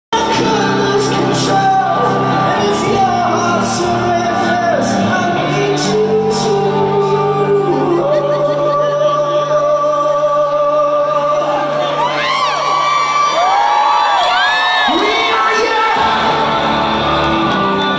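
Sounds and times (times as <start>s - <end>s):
man singing long notes: 0.2s - 12.2s
crowd whooping: 11.4s - 17.9s.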